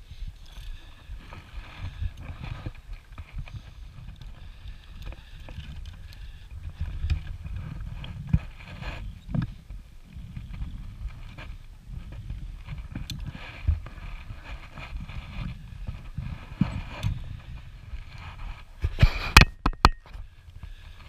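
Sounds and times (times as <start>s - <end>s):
wind rumbling on microphone: 0.0s - 21.0s
sharp clicks and knocks: 18.8s - 20.2s.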